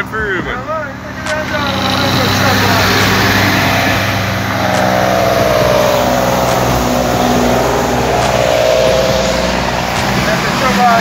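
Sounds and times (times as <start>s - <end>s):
diesel truck engine passing: 1.9s - 10.6s.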